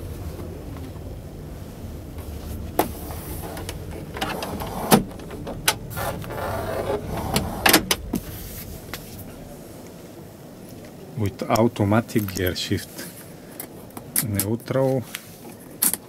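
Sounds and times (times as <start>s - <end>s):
steady low hum: 0.0s - 15.8s
scraping rustle: 2.2s - 10.9s.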